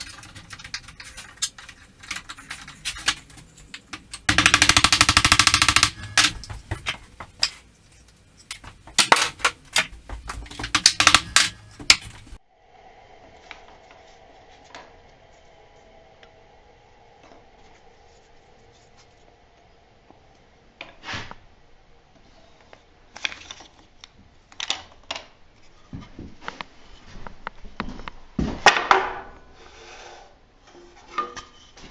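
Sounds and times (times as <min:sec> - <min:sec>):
faint steady hum: 0:00.0 - 0:20.8.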